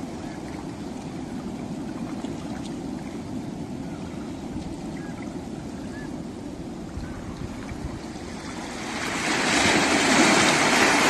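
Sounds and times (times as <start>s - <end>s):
ocean surf washing onto beach: 0.0s - 11.0s
faint bird chirps: 4.9s - 6.2s.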